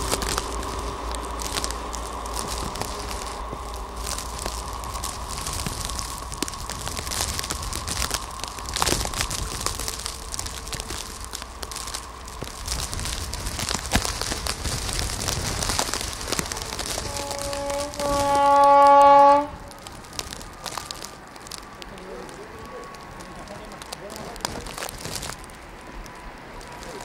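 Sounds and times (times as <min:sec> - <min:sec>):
wind on microphone: 0:00.0 - 0:21.9
train horn: 0:16.5 - 0:19.8.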